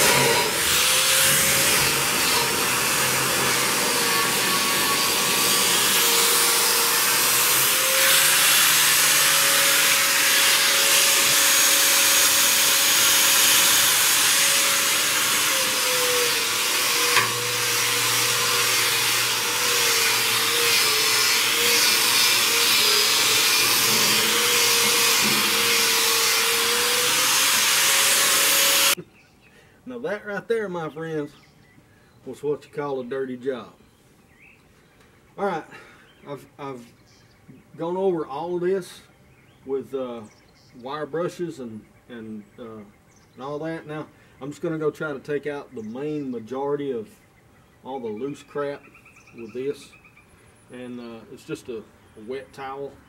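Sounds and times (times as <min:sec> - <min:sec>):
electric wire brush on metal: 0:00.0 - 0:29.0.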